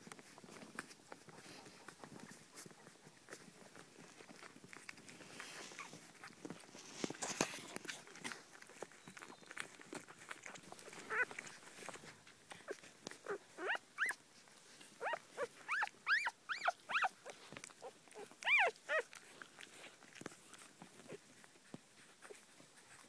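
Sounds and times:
puppies whining: 7.8s - 14.2s, 15.0s - 21.5s.

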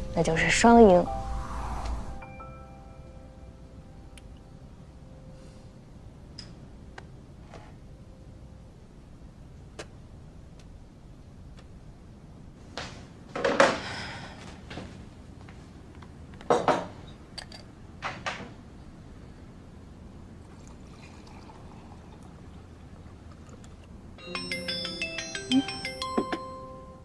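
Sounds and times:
liquid pouring into a mug: 20.4s - 23.8s
phone ringtone: 24.2s - 27.0s.

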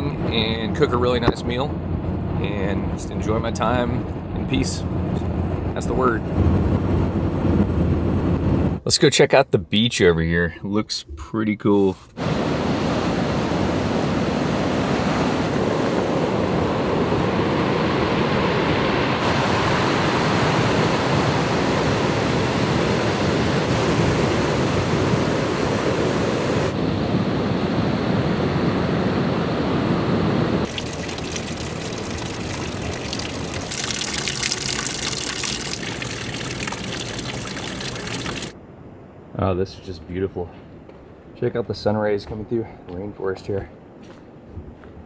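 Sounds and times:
rushing water: 12.2s - 26.8s, 30.6s - 38.6s.

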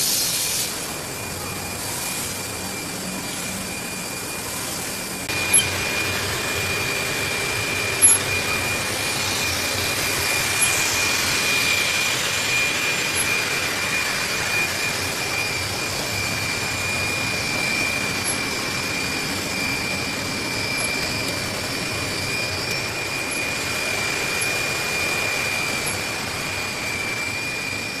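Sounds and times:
machine mechanical rush and whine: 0.0s - 28.0s.

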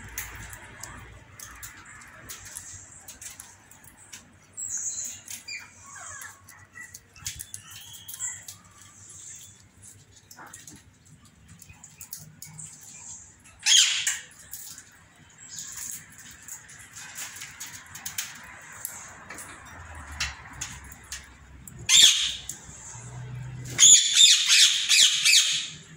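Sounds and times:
birds chirping: 0.1s - 25.9s
loud harsh bird squawk: 13.6s - 14.2s, 21.9s - 22.4s, 23.8s - 25.8s.

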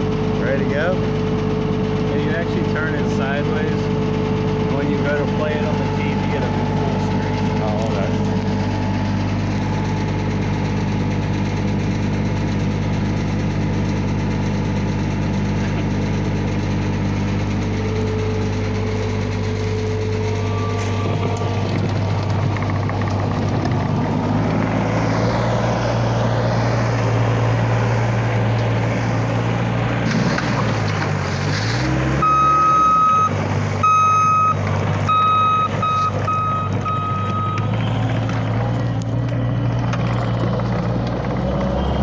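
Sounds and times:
diesel engine running: 0.0s - 42.0s
machine whine: 13.6s - 33.4s.

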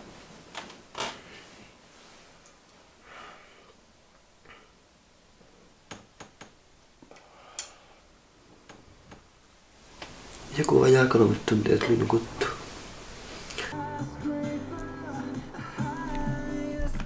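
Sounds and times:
duvet rustling: 0.0s - 3.0s, 9.8s - 13.8s
soft breathing: 1.2s - 5.8s, 7.1s - 8.3s.

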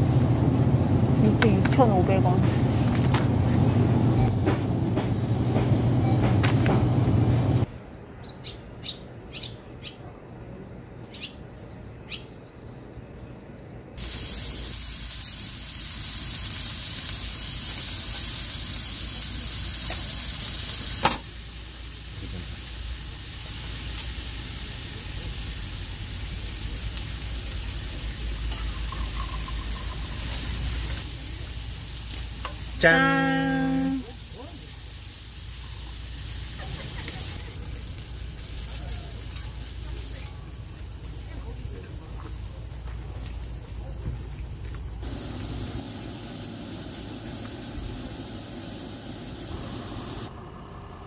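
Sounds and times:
low store hum: 0.0s - 51.0s
bird chirps: 7.9s - 14.0s
meat sizzling on a griddle pan: 14.0s - 41.3s, 45.0s - 50.3s.

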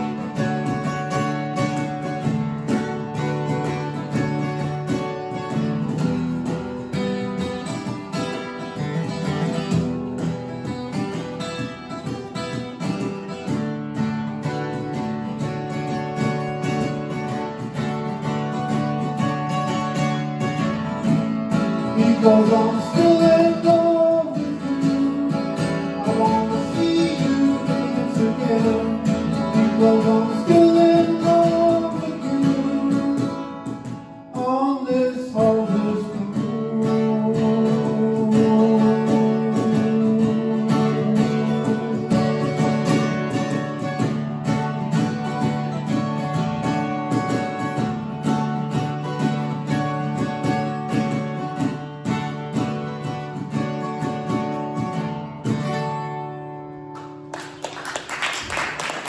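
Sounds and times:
acoustic guitar strumming: 0.0s - 59.0s
man singing: 21.8s - 43.2s.

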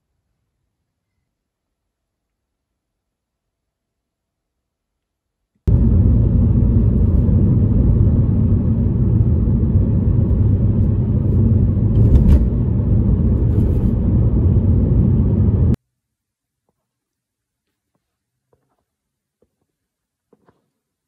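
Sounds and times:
car tyres and engine noise: 5.7s - 15.8s.

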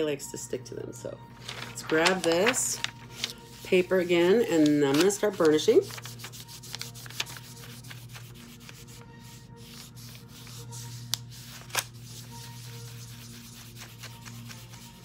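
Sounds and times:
fingers rubbing on paper: 3.6s - 15.0s.

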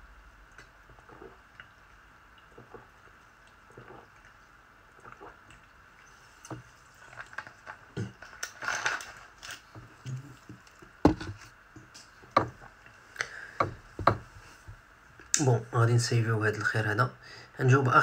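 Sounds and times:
glass bottle clicks and knocks: 11.1s - 11.4s.

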